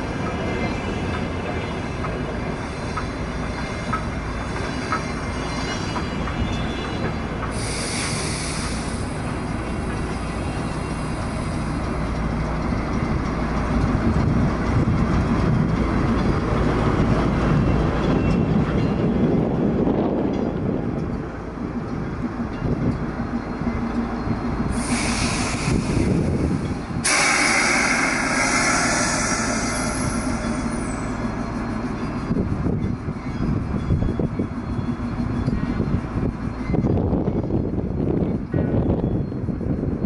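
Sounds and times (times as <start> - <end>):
train wheels clicking on rail joints: 0.0 - 40.0
wheels squealing on rails: 0.0 - 40.0
short hiss: 27.0 - 30.8.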